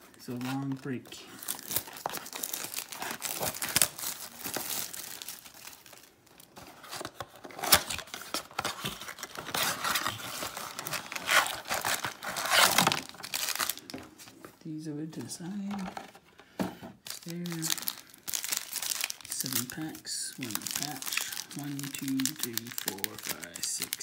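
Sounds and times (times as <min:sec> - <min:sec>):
plastic shrink wrap crinkling: 0:00.0 - 0:14.5, 0:17.0 - 0:24.0
cardboard flap tearing: 0:06.8 - 0:13.8.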